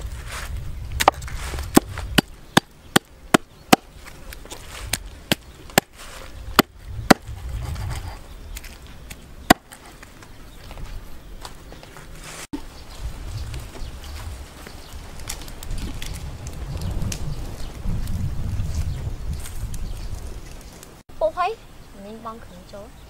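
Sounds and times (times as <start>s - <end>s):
cleaver chopping on wooden block: 9.5s - 9.8s.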